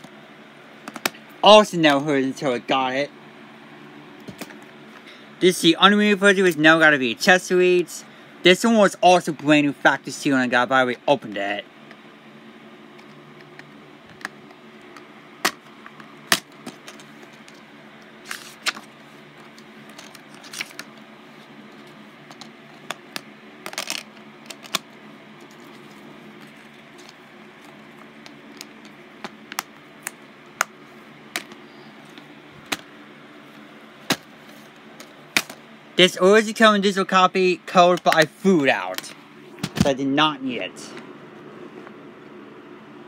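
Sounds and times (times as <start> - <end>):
faint steady hum: 0.0 - 43.0
plastic cases clicking and clacking: 22.3 - 24.9.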